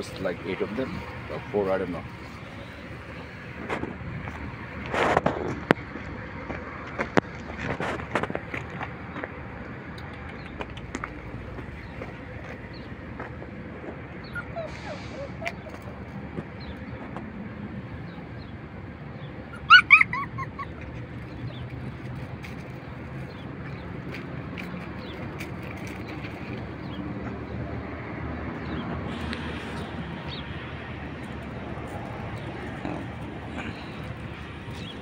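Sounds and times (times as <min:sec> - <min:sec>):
outdoor background noise: 0:00.0 - 0:35.0
puppy yelping: 0:14.2 - 0:16.1, 0:19.5 - 0:21.4.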